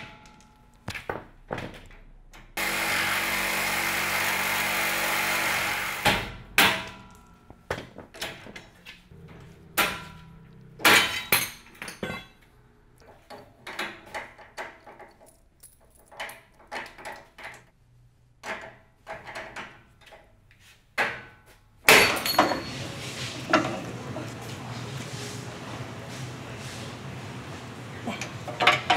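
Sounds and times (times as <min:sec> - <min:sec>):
reciprocating saw cutting metal: 0:02.6 - 0:06.2
metal clinks and knocks: 0:06.6 - 0:17.7, 0:21.9 - 0:22.9
steel bar clanking: 0:09.8 - 0:12.4, 0:28.2 - 0:28.9.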